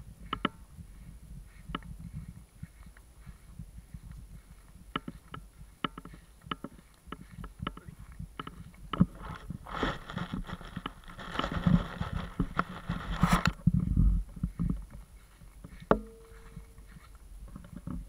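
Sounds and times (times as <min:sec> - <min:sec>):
camera knocks and rustles: 0:04.9 - 0:15.0.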